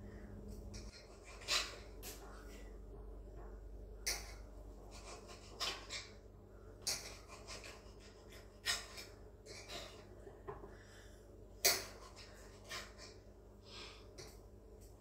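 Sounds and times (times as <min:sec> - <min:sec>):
soft breathing: 0:00.0 - 0:00.9, 0:09.5 - 0:11.5, 0:12.1 - 0:14.4.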